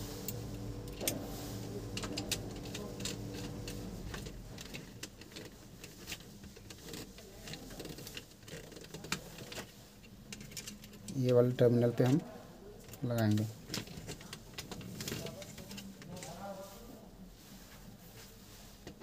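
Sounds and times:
steady low hum: 0:00.0 - 0:07.5.

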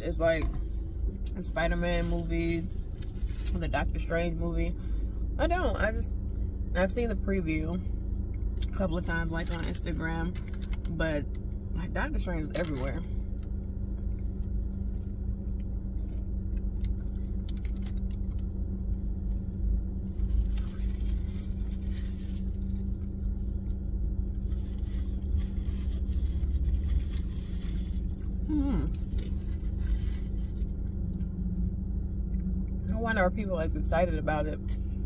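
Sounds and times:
car cabin rumble and hum: 0:00.0 - 0:35.0
food wrapper crackling: 0:20.1 - 0:23.8
person humming: 0:28.5 - 0:28.9.

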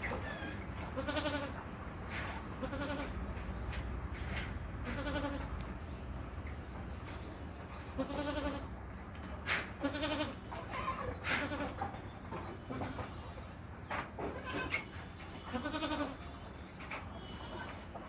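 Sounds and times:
goats bleating: 0:00.3 - 0:01.6, 0:02.6 - 0:03.2, 0:04.8 - 0:05.6, 0:07.9 - 0:08.7, 0:09.8 - 0:11.9, 0:15.4 - 0:16.4.

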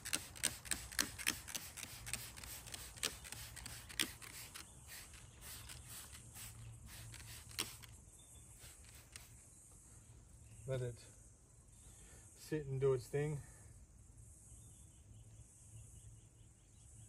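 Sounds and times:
spray bottle squirting: 0:00.0 - 0:09.4.

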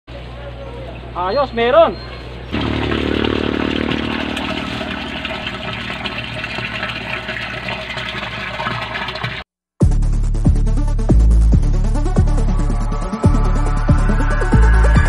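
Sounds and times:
low hum: 0:02.5 - 0:07.9
water gushing into plastic drum: 0:02.5 - 0:09.5.

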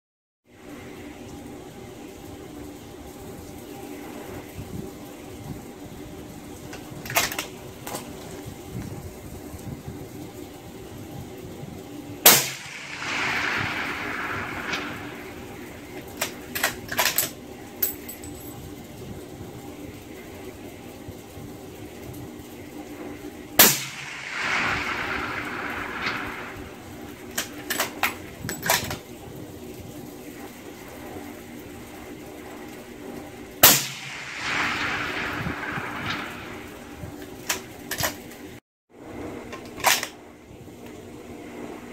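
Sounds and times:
gunshot echo rolling back: 0:12.2 - 0:17.1, 0:23.6 - 0:28.8, 0:33.6 - 0:38.3
suppressed rifle shots: 0:12.3 - 0:17.2, 0:23.6 - 0:28.9, 0:33.6 - 0:38.2
metallic clicks of rifle action: 0:16.0 - 0:18.3, 0:39.5 - 0:40.2.

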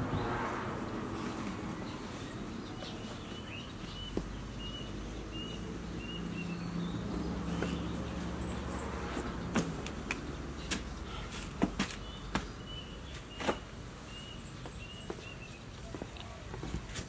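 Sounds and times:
bird chirping: 0:00.1 - 0:16.8.

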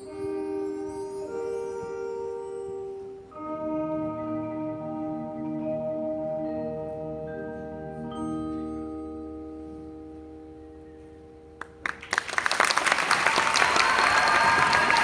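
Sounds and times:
mallet keyboards ringing chords: 0:00.0 - 0:11.6
audience applause and cheering: 0:11.8 - 0:15.0.

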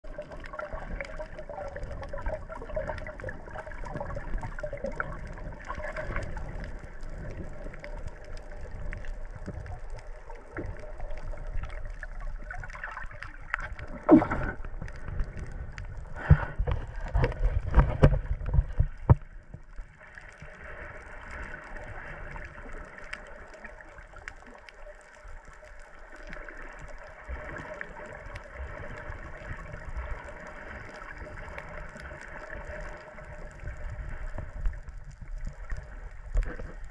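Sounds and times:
muffled underwater hum: 0:00.0 - 0:20.0.

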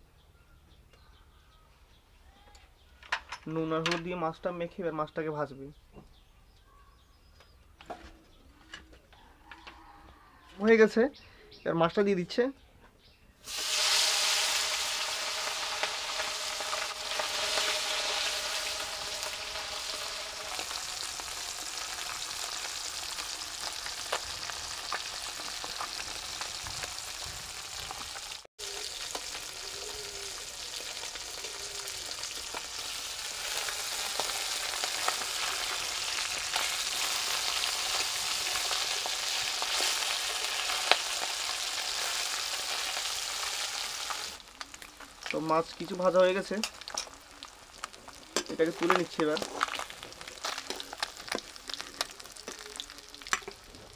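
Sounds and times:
fish sizzling in hot oil: 0:13.4 - 0:53.9.

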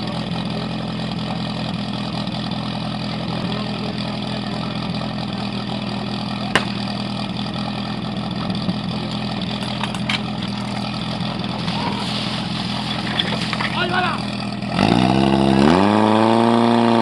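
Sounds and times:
pump engine idling: 0:00.0 - 0:15.8
sharp crack: 0:06.5 - 0:07.1.

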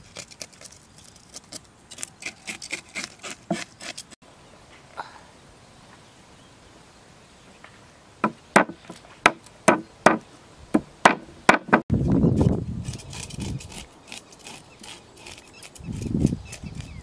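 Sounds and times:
cleaver chopping on wooden block: 0:08.2 - 0:10.2.

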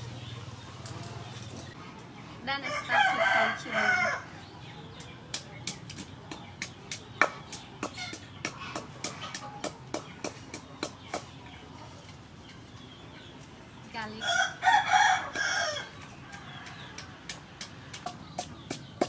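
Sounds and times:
rooster crowing: 0:02.6 - 0:04.3, 0:14.2 - 0:17.0
pestle pounding in mortar: 0:05.0 - 0:11.3, 0:15.3 - 0:19.0.

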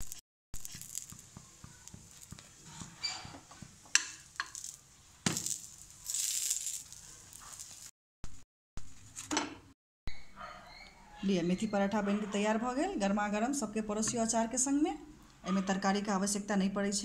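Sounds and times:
flatbread sizzling on a pan: 0:00.0 - 0:08.0.

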